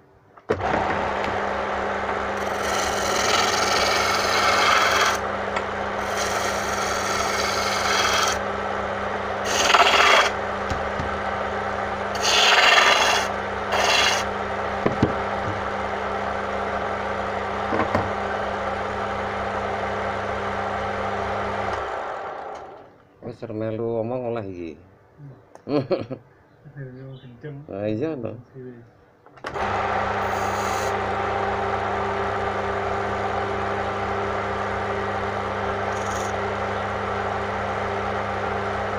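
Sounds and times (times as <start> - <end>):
lathe motor hum: 0.5 - 22.9, 29.5 - 38.9
chisel scraping spinning wood: 2.0 - 8.4, 9.3 - 11.0, 12.1 - 14.4, 29.6 - 31.7, 34.9 - 37.4.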